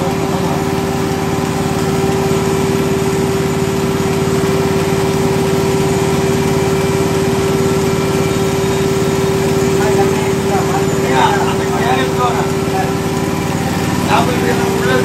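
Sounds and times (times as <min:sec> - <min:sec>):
milking machine pump humming: 0:00.0 - 0:15.0.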